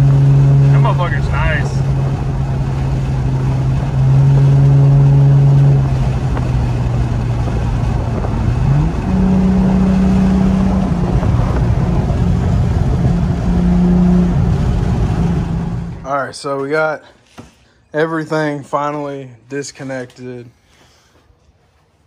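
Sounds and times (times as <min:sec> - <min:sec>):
car engine drone: 0:00.0 - 0:16.3
road noise: 0:00.0 - 0:16.9.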